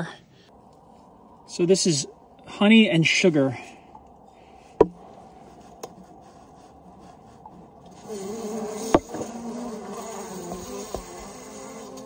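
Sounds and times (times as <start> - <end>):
honeybees buzzing: 5.4 - 12.0.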